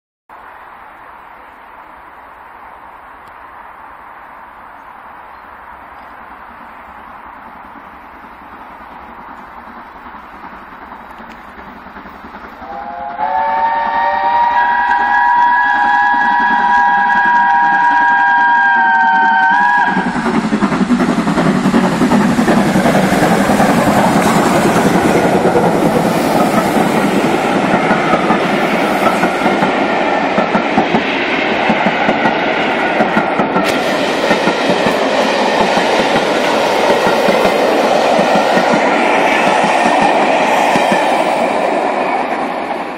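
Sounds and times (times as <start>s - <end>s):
steam train rumbling past: 0.4s - 42.9s
train wheels clacking over joints: 7.3s - 12.9s, 19.1s - 42.9s
train whistle: 12.6s - 20.2s.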